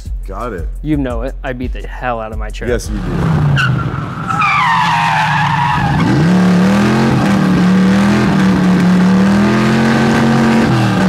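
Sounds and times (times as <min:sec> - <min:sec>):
tires squealing: 0:02.9 - 0:11.0
truck engine revving: 0:02.9 - 0:11.0.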